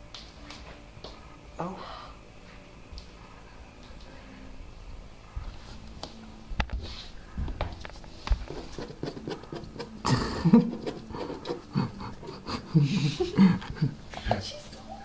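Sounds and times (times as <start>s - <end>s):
scraping against cardboard box: 8.4s - 12.5s.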